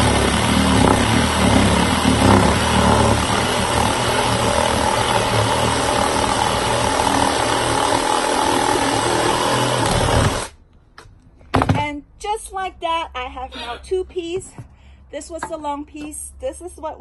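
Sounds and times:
reciprocating saw cutting branch: 0.0 - 10.6.

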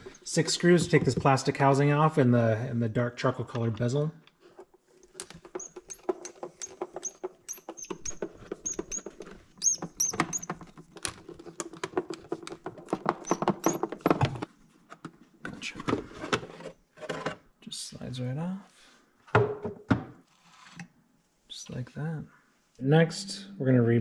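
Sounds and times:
screwdriver clicking and squeaking: 5.1 - 10.7, 13.0 - 14.0.

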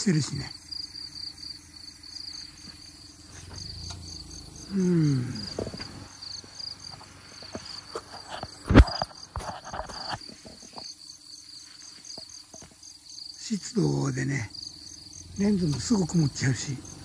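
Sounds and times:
crickets chirping: 0.0 - 17.0
falling voice-like sound: 4.7 - 5.6
handling noise: 5.2 - 10.9.

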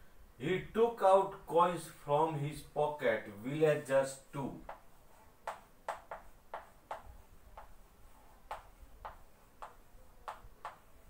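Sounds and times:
chalk tapping on chalkboard: 4.6 - 11.0.

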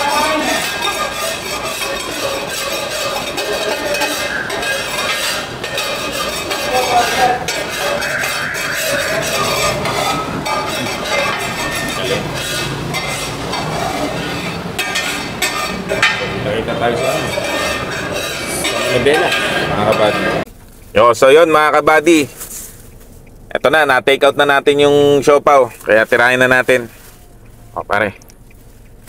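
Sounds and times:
metal spatula scraping a pan: 0.0 - 20.5.

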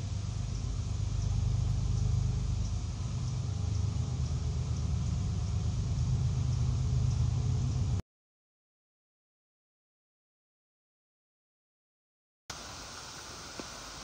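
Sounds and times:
low mechanical rumble: 0.0 - 8.0.

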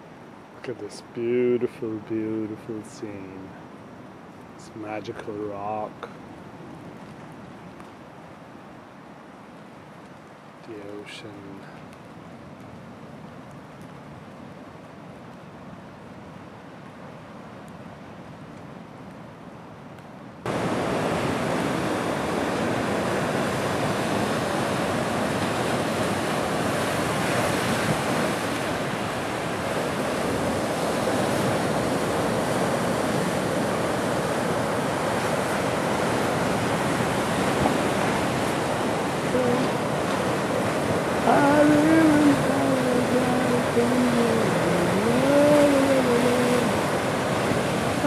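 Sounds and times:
ocean surf breaking on rocks: 20.4 - 48.0.

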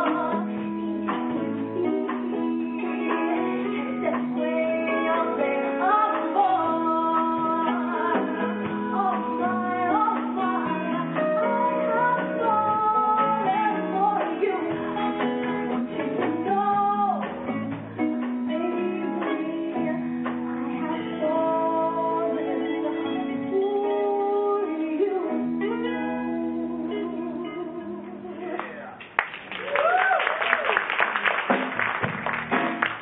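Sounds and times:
woman singing into a microphone: 0.0 - 28.6
live band playing: 0.0 - 28.8, 30.8 - 33.0
drum hits: 31.4 - 33.0.

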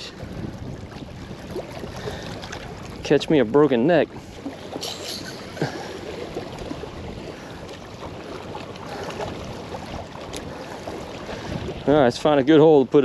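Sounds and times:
small waves lapping: 0.0 - 13.0
wind buffeting microphone: 0.0 - 13.0.

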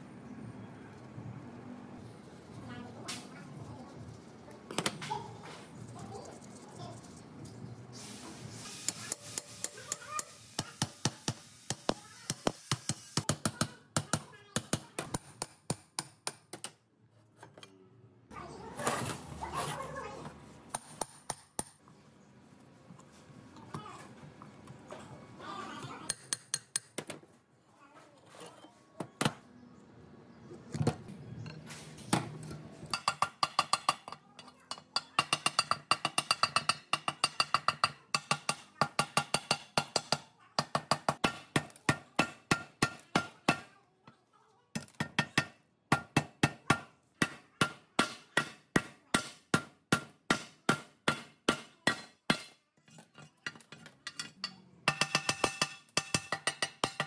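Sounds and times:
hammer striking metal: 45.0 - 52.6, 54.9 - 57.0.

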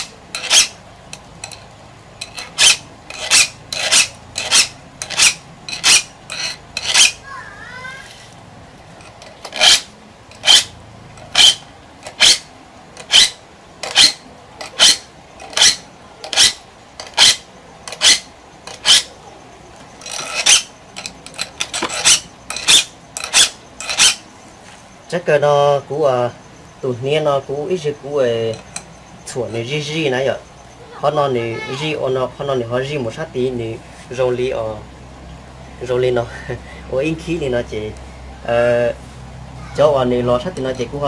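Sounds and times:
blade sharpening strokes: 0.0 - 0.8, 2.2 - 7.2, 9.0 - 19.1, 20.0 - 24.2.

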